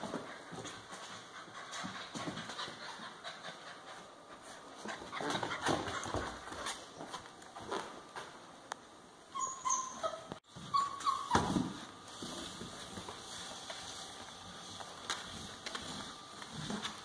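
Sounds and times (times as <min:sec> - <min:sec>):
puppy whimpering: 0:09.4 - 0:11.7.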